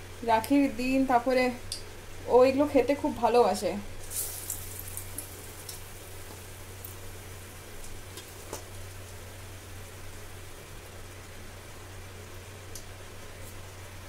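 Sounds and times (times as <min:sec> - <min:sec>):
low steady hum: 0:00.0 - 0:14.0
deep-frying sizzle: 0:03.0 - 0:14.0.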